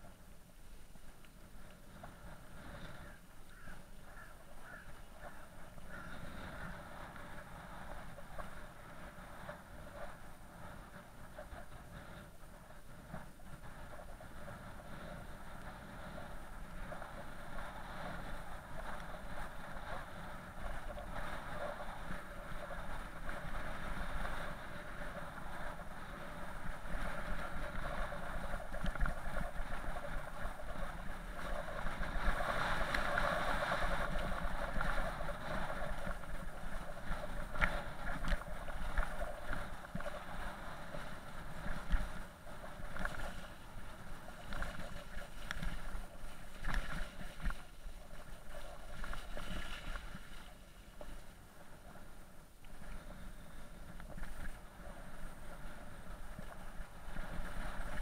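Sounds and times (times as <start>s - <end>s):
bike tyres on wet gravel: 13.2s - 51.8s.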